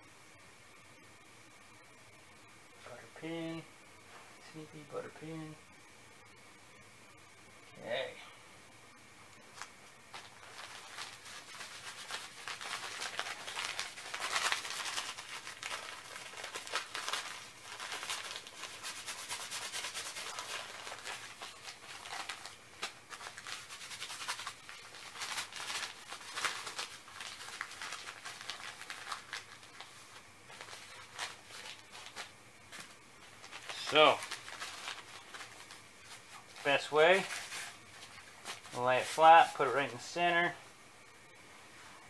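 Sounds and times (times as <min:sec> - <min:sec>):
hands crinkling paper and plastic: 0:09.5 - 0:40.0.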